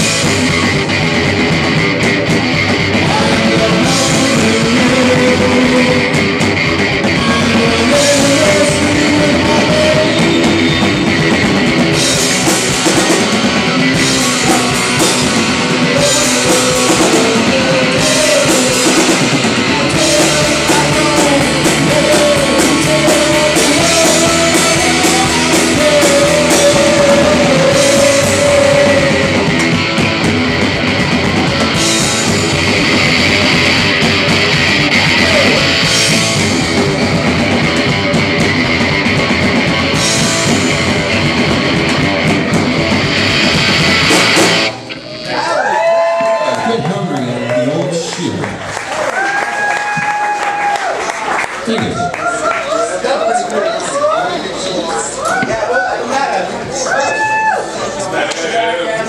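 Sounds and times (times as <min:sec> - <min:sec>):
drum kit: 0:00.0 - 0:46.7
electric guitar: 0:00.0 - 0:52.1.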